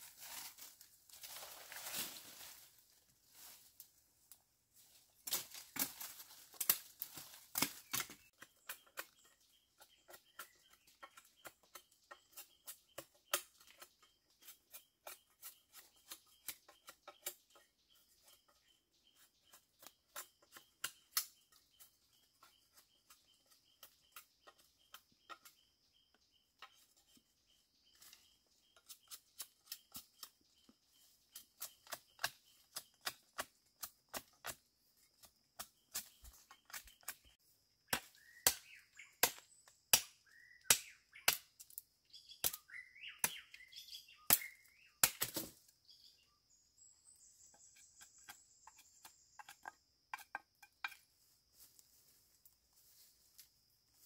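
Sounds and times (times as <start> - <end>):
twigs and leaves snapping and crackling: 5.2 - 8.3.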